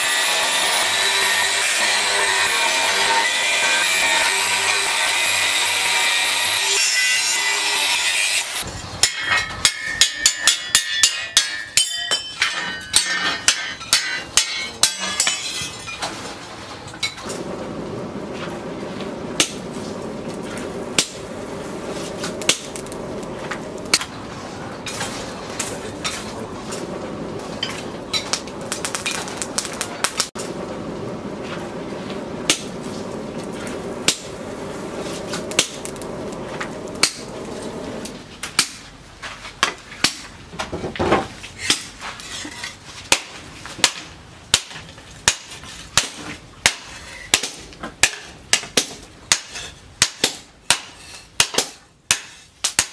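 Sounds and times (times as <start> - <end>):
hammer striking steel on anvil: 2.8 - 16.1, 43.1 - 52.9
clinks of tongs and coals: 9.0 - 16.2
forge air blast rushing: 17.2 - 38.3.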